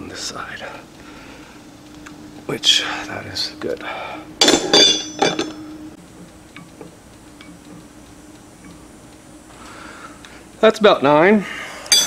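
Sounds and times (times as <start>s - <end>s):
faint gear ticks: 0.0s - 4.1s, 5.5s - 12.0s
wrench clinking on metal: 4.4s - 5.6s.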